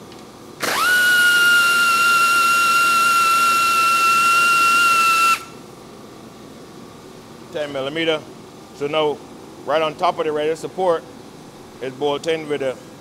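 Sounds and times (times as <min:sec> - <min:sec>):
power tool motor whine: 0:00.6 - 0:05.5.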